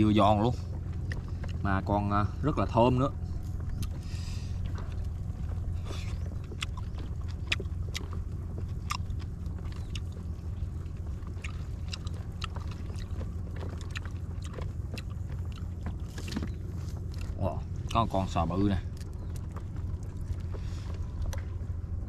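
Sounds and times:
steady low rumble: 0.0 - 22.0
person chewing: 3.4 - 18.1
small crunchy clicks: 3.4 - 21.7.

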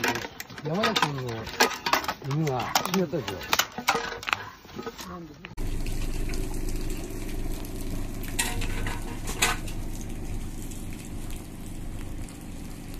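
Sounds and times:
diesel engine running: 5.6 - 12.9.

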